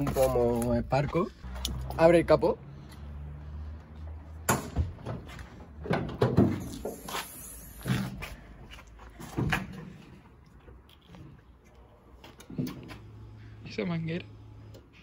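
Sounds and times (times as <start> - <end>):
car bonnet metal clunks: 4.5 - 6.7.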